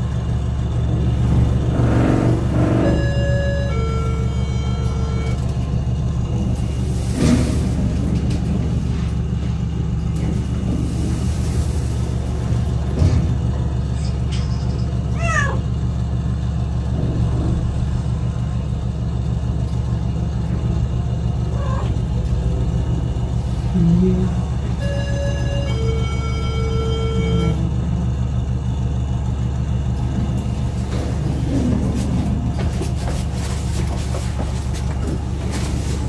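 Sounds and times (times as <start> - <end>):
cat meowing: 15.1 - 15.6, 21.5 - 22.0.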